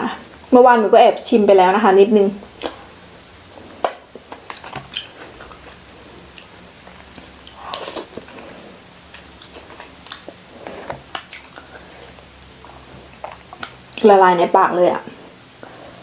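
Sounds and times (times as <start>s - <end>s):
slurping: 3.5s - 13.9s
wet mouth smacks and chewing: 3.8s - 8.5s, 9.1s - 12.2s, 13.1s - 13.9s.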